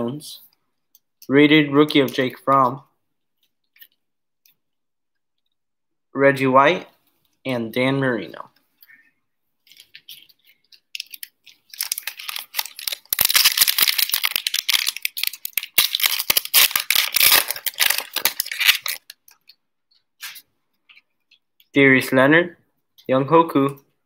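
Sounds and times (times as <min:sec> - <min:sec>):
plastic wrapper tearing and crinkling: 0:09.6 - 0:19.6, 0:20.2 - 0:20.4.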